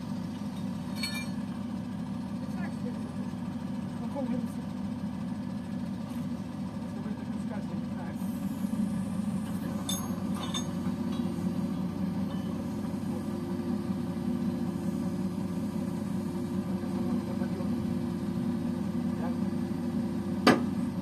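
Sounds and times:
diesel truck engine droning: 0:00.0 - 0:21.0
light metallic clinks: 0:00.5 - 0:01.4.

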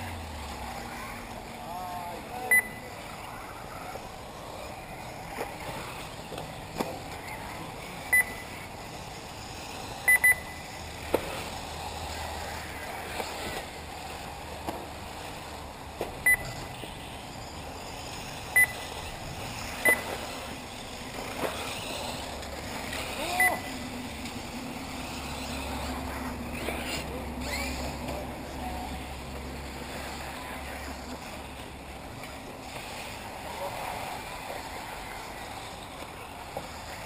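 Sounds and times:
electric buggies whirring: 0:00.0 - 0:37.0
short high electronic beeps: 0:02.5 - 0:02.8, 0:08.1 - 0:08.4, 0:10.1 - 0:10.6, 0:16.2 - 0:16.6, 0:18.6 - 0:18.9, 0:23.3 - 0:23.7.

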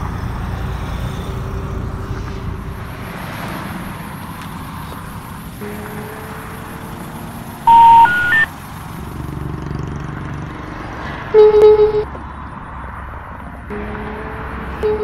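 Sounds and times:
low wavering tone: 0:05.6 - 0:08.5
rising three-tone phone signal: 0:05.6 - 0:08.5, 0:11.4 - 0:12.1, 0:13.7 - 0:15.0.

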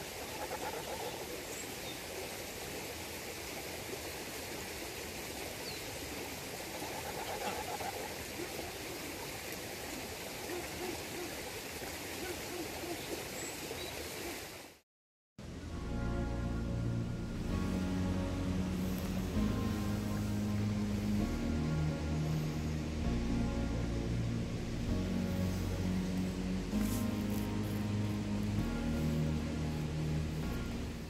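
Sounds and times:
stream rushing: 0:00.0 - 0:14.8, 0:15.4 - 0:31.0
geese calling: 0:00.2 - 0:01.4, 0:06.7 - 0:08.6.

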